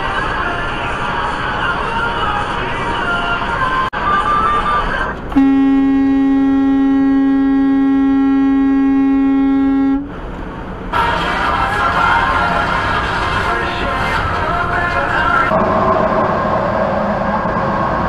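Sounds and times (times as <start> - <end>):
truck horn blast: 5.3 - 10.1
background music: 11.0 - 15.5.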